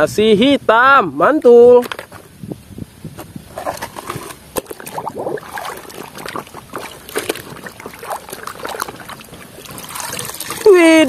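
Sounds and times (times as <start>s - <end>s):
water sloshing in a basin: 3.5s - 11.0s.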